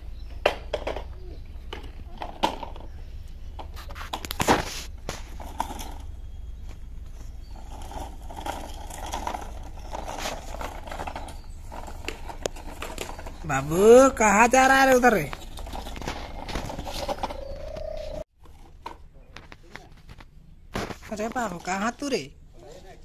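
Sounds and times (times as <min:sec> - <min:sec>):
toy truck rattling over dirt: 0:03.6 - 0:06.4, 0:07.4 - 0:19.0
knocks and footsteps: 0:14.6 - 0:21.9.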